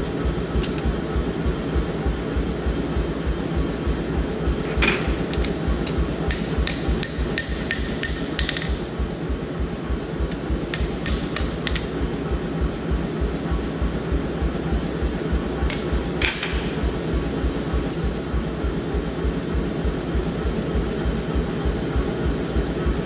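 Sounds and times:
background music with steady beat: 0.0 - 23.0
hammer tapping blade on anvil: 4.9 - 8.8, 10.7 - 11.9, 17.9 - 18.2.

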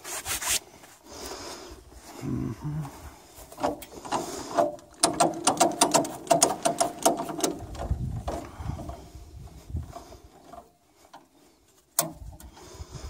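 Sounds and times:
metal linkage and chains clinking: 3.6 - 9.0
dull low thumps: 7.6 - 10.0.

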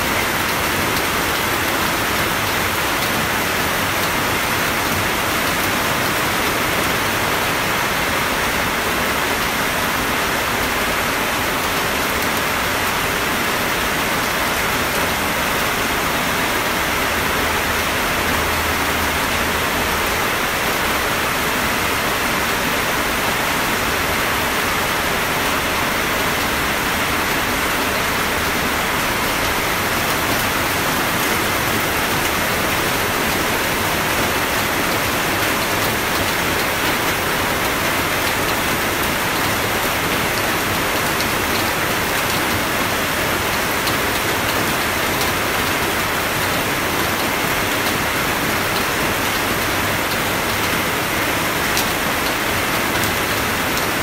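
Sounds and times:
steady rain: 0.0 - 54.0.

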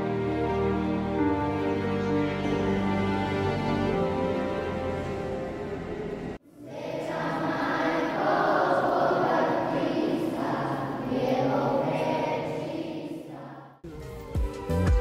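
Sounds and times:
choir singing with echo: 3.8 - 13.9.

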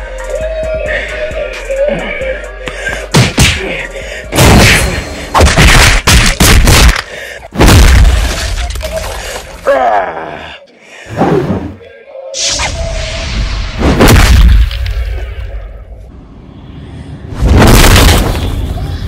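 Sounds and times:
punch impact hits: 3.1 - 3.6, 7.6 - 8.3, 13.8 - 14.8
pained vocal cry: 9.5 - 10.8.

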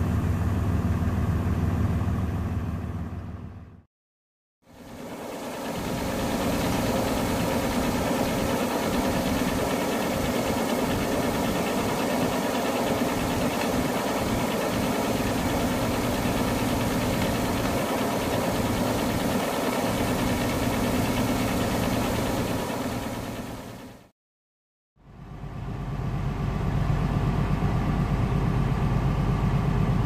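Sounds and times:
combine harvester engine drone: 0.0 - 3.8, 4.7 - 24.1, 25.2 - 30.0.

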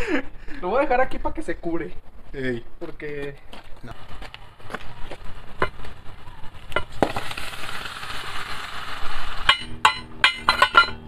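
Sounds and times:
steady hiss: 5.3 - 10.2
metal clanks on ingot mold: 9.5 - 11.0.

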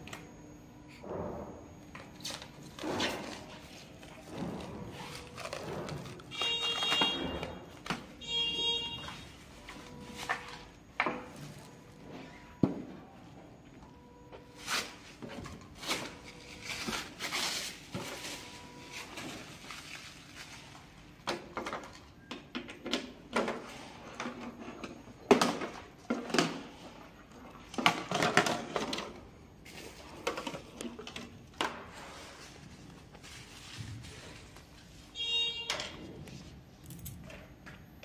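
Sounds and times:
plastic wrap crinkling: 3.3 - 7.0.

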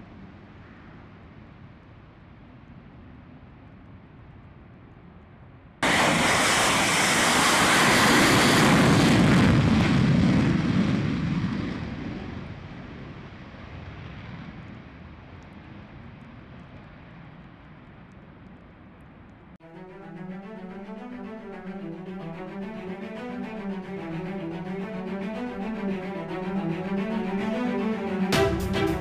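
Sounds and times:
fighter jet taking off: 5.8 - 12.2, 19.6 - 29.0.

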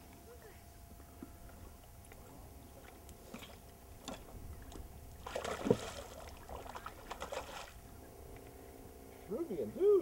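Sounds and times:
fish splashing in water: 2.8 - 7.9.

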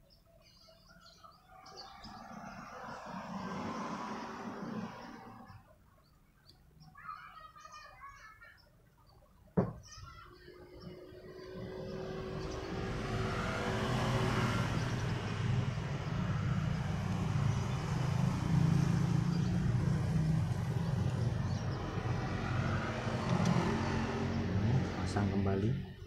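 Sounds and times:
vehicle engine rumbling: 10.0 - 26.0.

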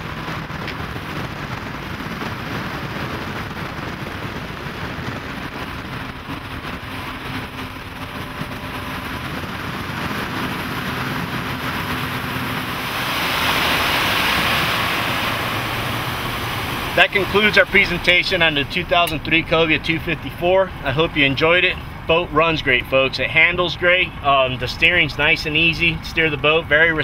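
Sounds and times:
wind rushing: 0.0 - 22.1
outboard engines humming: 0.0 - 27.0
hull spray hiss: 9.0 - 19.8.

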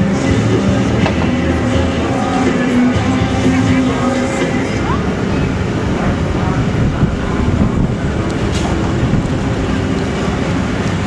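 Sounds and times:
low mechanical rumble of machinery: 0.0 - 11.0.

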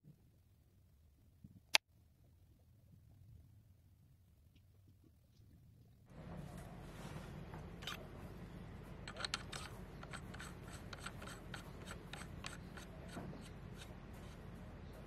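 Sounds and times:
light metal scraping: 6.1 - 15.0
small metallic clicks: 9.0 - 13.9.

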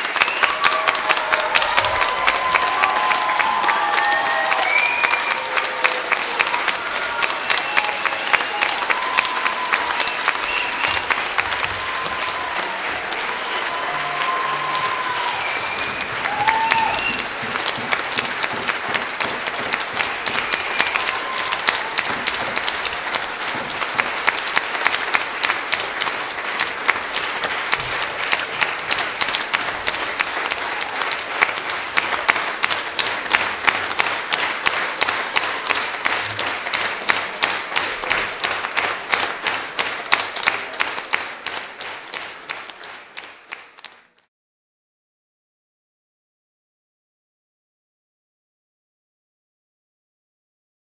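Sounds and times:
audience applauding: 0.0 - 44.3
rhythmic clapping in unison: 0.0 - 44.3
whoops and whistles: 4.2 - 5.4, 14.4 - 17.2.

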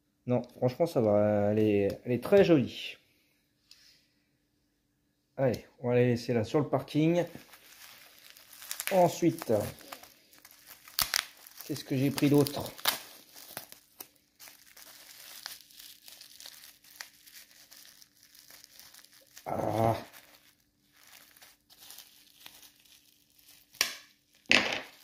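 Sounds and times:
bubble wrap crinkling: 6.9 - 25.0.

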